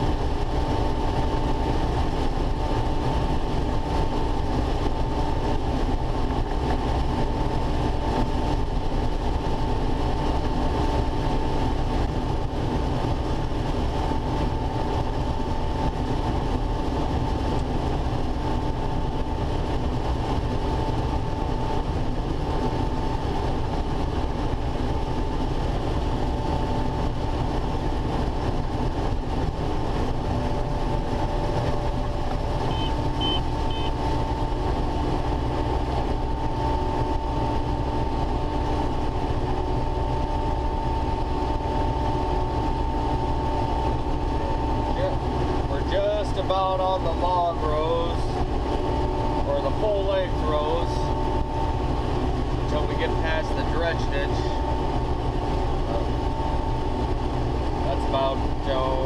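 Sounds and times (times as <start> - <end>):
combine harvester engine drone: 0.0 - 59.0
short high beeps: 32.7 - 34.0.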